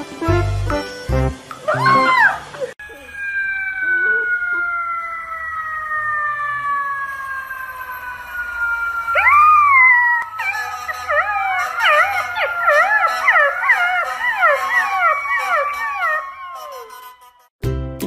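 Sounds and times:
falling siren-like tone: 0:01.6 - 0:17.5
puppy howling: 0:01.7 - 0:07.1, 0:08.9 - 0:17.5.

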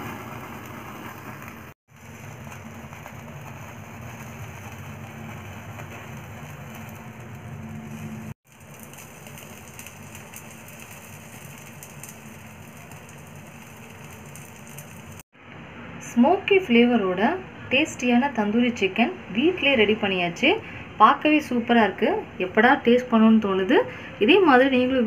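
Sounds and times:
gas burner rushing: 0:00.0 - 0:15.2.

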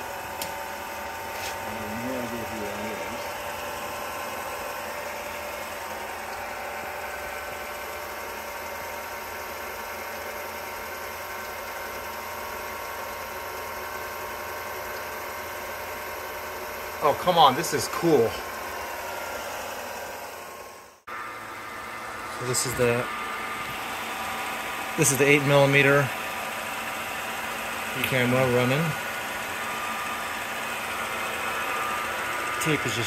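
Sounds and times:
film projector whirring: 0:00.0 - 0:33.0.

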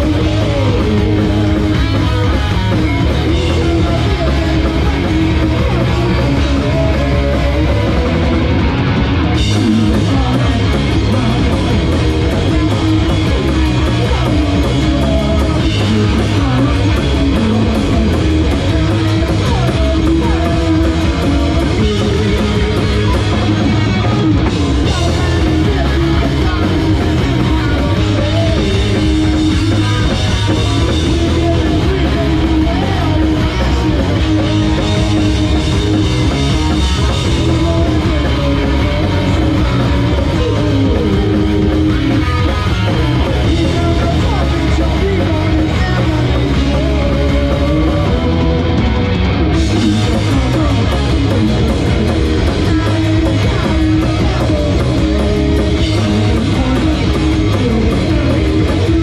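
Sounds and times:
drum kit: 0:00.0 - 0:59.0
electric guitars: 0:00.0 - 0:59.0.

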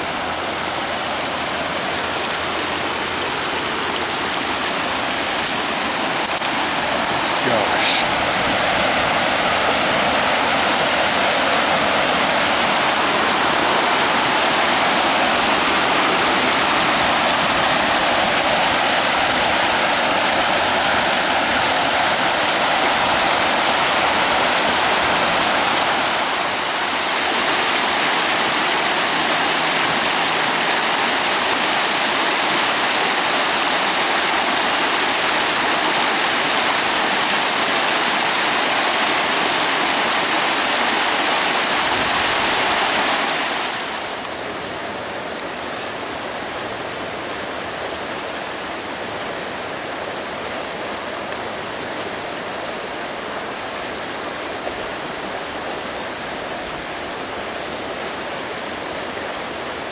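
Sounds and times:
floodwater rushing: 0:00.0 - 0:59.9.

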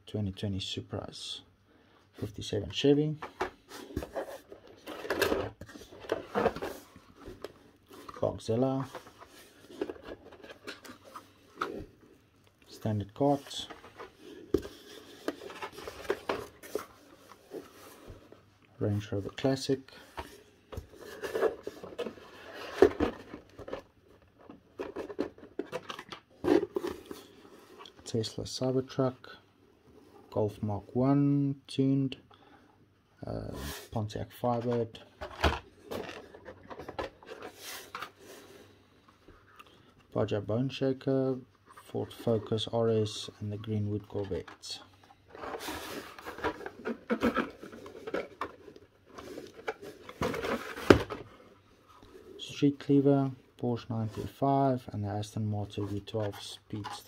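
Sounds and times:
card and plastic rustling: 0:02.7 - 0:28.2, 0:33.5 - 0:40.4, 0:41.6 - 0:57.0.

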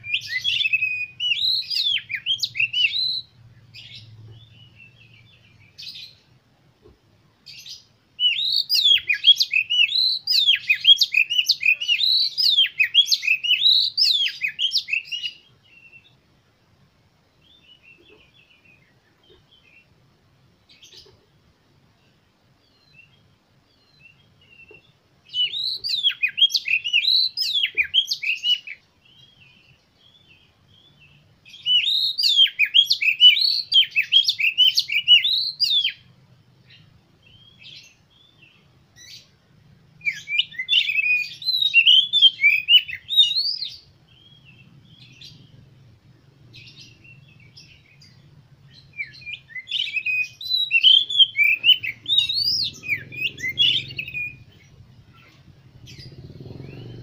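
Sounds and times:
songbird whistled phrases: 0:00.0 - 0:03.3, 0:07.6 - 0:16.1, 0:25.3 - 0:29.3, 0:31.5 - 0:36.1, 0:40.0 - 0:44.5, 0:47.0 - 0:56.9
soft scattered bird notes: 0:00.0 - 0:57.0.

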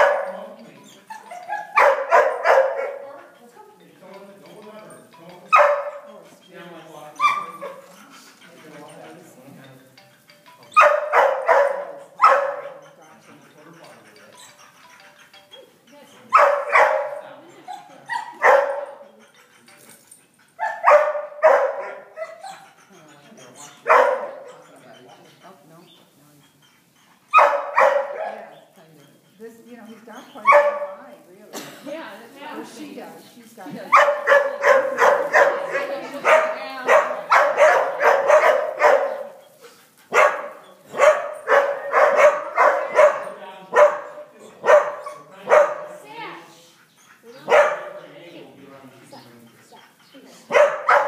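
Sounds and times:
dog barking: 0:00.0 - 0:00.4, 0:01.4 - 0:03.1, 0:05.5 - 0:06.1, 0:07.2 - 0:07.9, 0:10.8 - 0:12.9, 0:16.3 - 0:19.0, 0:20.6 - 0:22.7, 0:23.7 - 0:24.6, 0:27.3 - 0:28.5, 0:30.4 - 0:31.0, 0:33.9 - 0:39.4, 0:40.1 - 0:46.0, 0:47.3 - 0:48.2, 0:50.4 - 0:51.0.

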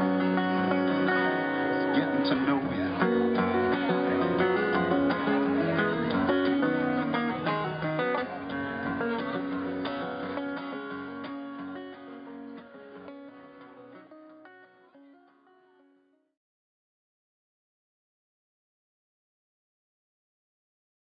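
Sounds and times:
acoustic guitar music: 0:00.0 - 0:16.2.

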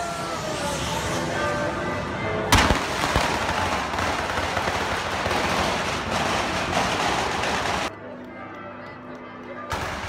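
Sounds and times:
fireworks crackling bangs: 0:02.5 - 0:07.9.

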